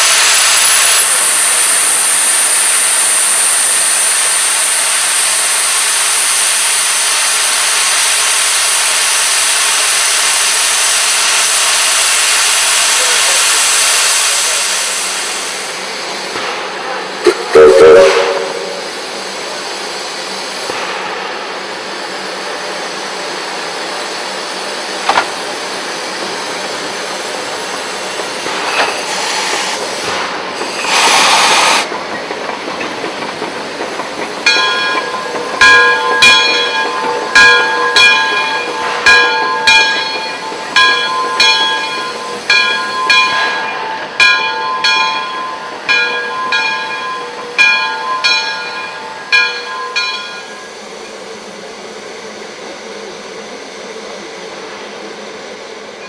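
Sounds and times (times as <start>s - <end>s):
loud blast of steam: 0.0s - 32.0s
steam locomotive hissing: 0.0s - 56.0s
bell ringing: 34.5s - 50.7s.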